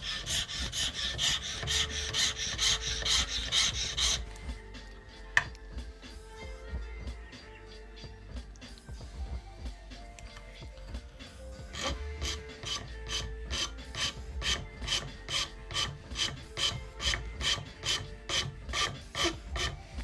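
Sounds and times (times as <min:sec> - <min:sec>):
hand file rasping: 0:00.0 - 0:04.5, 0:11.7 - 0:20.0.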